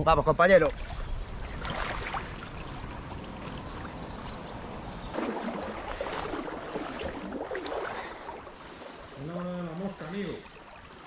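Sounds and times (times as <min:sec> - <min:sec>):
river water flowing: 0:00.8 - 0:11.0.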